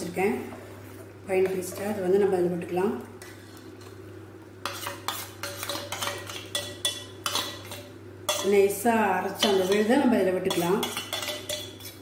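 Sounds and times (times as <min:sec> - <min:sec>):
spoon scraping steel bowl: 0:04.6 - 0:08.5, 0:09.4 - 0:12.0.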